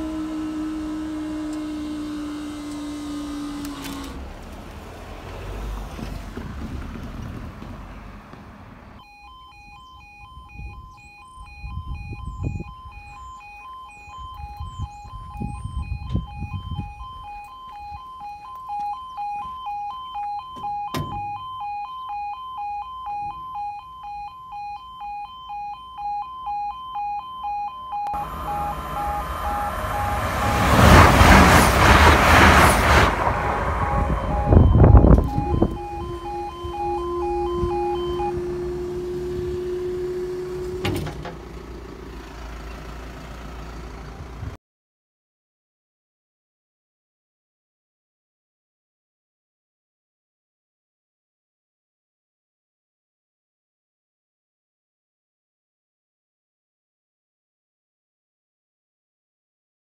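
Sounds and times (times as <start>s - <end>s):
level crossing two-tone alarm: 9.0s - 31.3s, 33.2s - 40.8s
approaching train: 28.2s - 44.5s.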